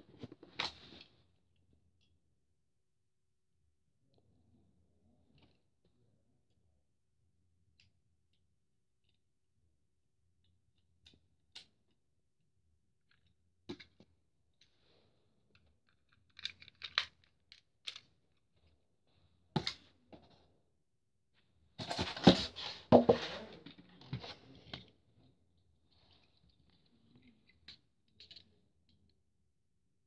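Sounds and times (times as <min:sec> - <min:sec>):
hands handling toy and packaging: 0:15.5 - 0:18.8, 0:21.8 - 0:24.9.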